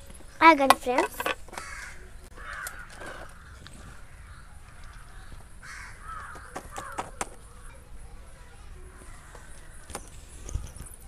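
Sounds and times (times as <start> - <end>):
crows cawing: 1.5 - 7.2.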